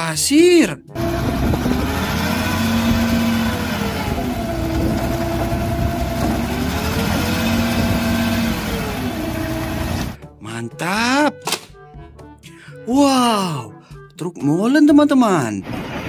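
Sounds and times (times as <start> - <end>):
diesel truck engine running: 1.0 - 10.2.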